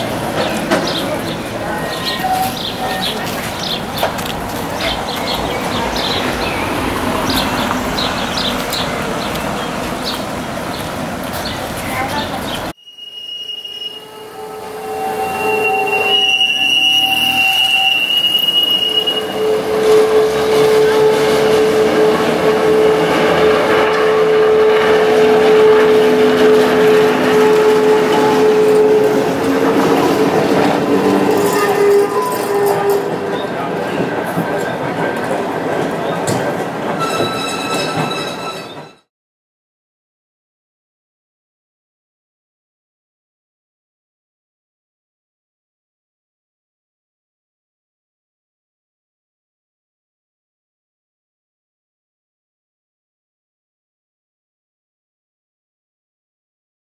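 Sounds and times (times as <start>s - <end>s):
tram rumbling on rails: 0.0s - 12.8s, 13.9s - 39.1s
birds chirping: 0.4s - 12.7s.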